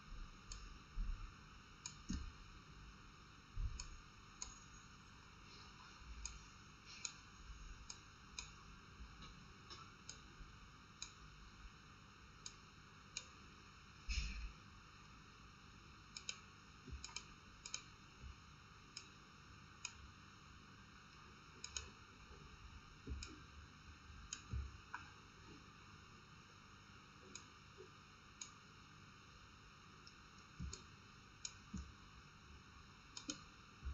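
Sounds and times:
computer mouse clicks: 16.2s - 17.9s, 21.6s - 22.0s, 24.3s - 25.2s, 33.2s - 33.5s.

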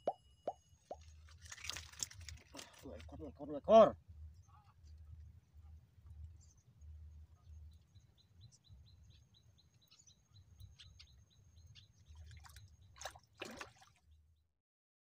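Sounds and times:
faint bird chirping: 4.2s - 13.2s.

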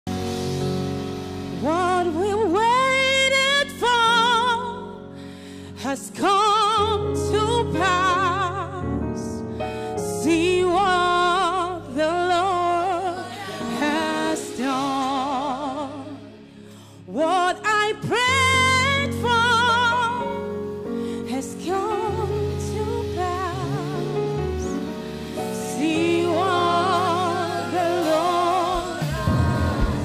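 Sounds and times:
instrumental backing: 0.1s - 30.0s
woman singing with vibrato: 10.2s - 16.4s, 17.1s - 20.4s, 25.6s - 30.0s.

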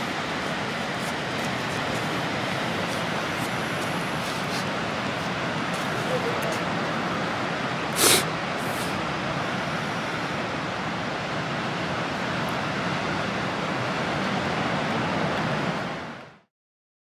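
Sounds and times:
surf breaking on a beach: 0.0s - 16.2s.

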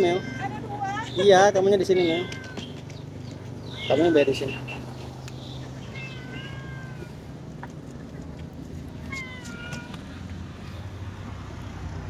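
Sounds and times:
cat meowing: 0.0s - 1.3s, 1.9s - 2.8s, 3.6s - 4.5s, 5.8s - 7.2s, 9.0s - 10.2s.

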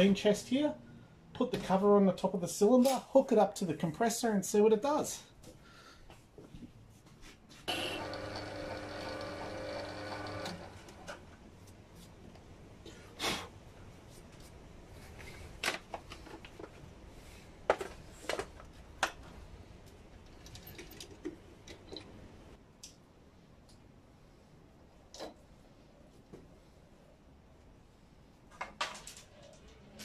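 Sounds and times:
lathe motor humming: 7.7s - 11.1s.

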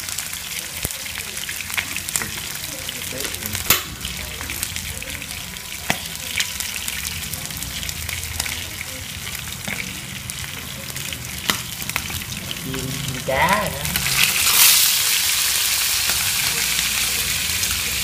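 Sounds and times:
meat frying in hot oil: 0.0s - 18.0s
oil popping: 3.2s - 5.1s.

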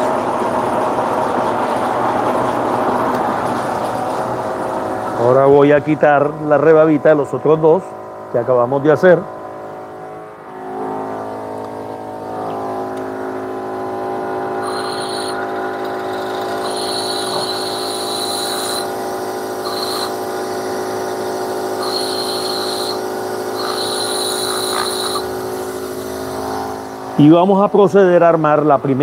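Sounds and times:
bench grinder motor humming: 12.4s - 27.0s
metal grinding on wheel: 14.6s - 26.6s.

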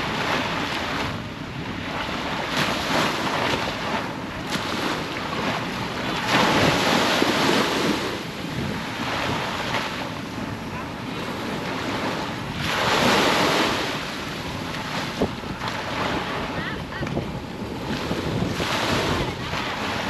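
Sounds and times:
sea surf washing onto beach: 0.0s - 20.0s
wind buffeting microphone: 0.0s - 20.0s.

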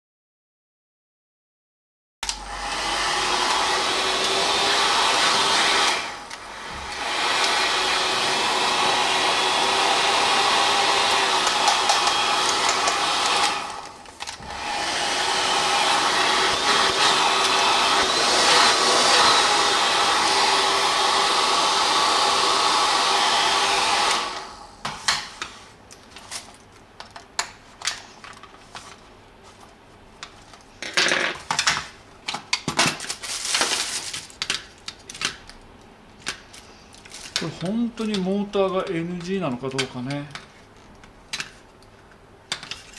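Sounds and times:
hair dryer blowing hum: 2.2s - 25.8s.

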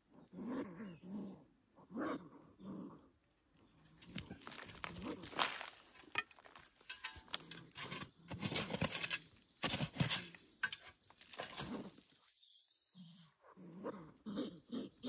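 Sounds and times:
hand tool digging dry soil: 3.9s - 12.4s.

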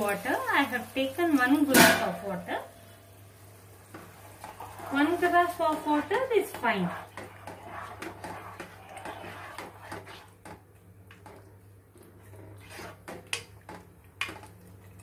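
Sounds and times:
spatula stirring curry: 3.7s - 15.0s.

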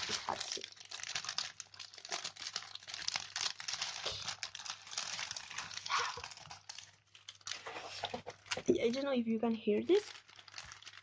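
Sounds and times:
plastic bags crinkling: 0.0s - 11.0s.

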